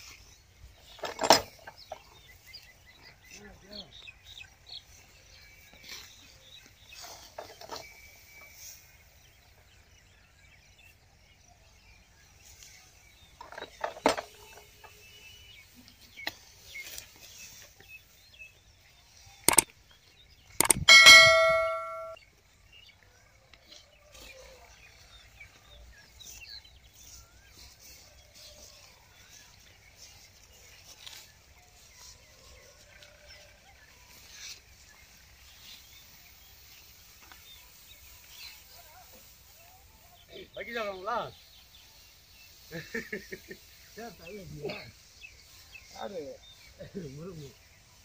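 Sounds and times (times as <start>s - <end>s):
loud metallic clang: 20.6s - 22.2s
sharp knock: 20.6s - 22.2s.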